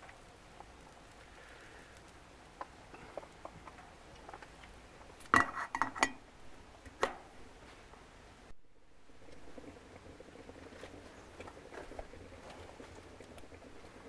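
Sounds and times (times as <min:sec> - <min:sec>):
faint ticks: 0:00.0 - 0:04.8, 0:11.3 - 0:13.6
metal lid clinking on pot: 0:05.3 - 0:06.2.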